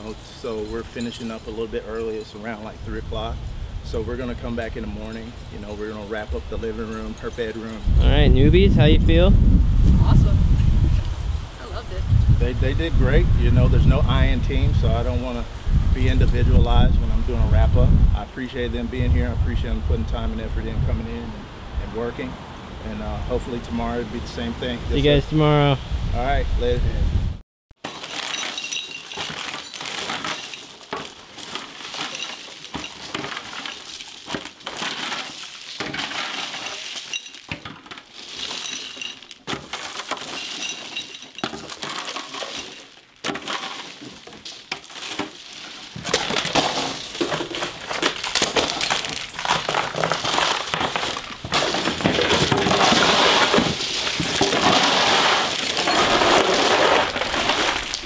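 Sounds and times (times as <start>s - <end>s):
metal cartridges clattering on wood floor: 27.8s - 58.0s.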